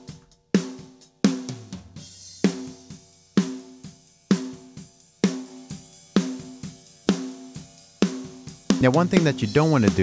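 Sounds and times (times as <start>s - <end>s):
snare drum beat: 8.7s - 10.0s.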